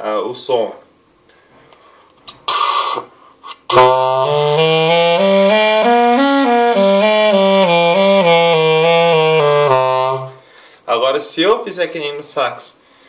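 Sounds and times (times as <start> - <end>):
breathy hiss: 1.3 - 3.7, 10.3 - 10.9
reedy clarinet notes: 2.4 - 10.4.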